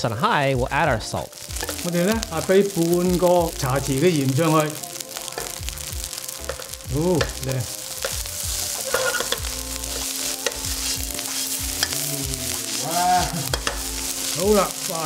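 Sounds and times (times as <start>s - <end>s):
rice sizzling in a wok: 0.0s - 15.0s
spatula scraping a wok: 5.3s - 15.0s.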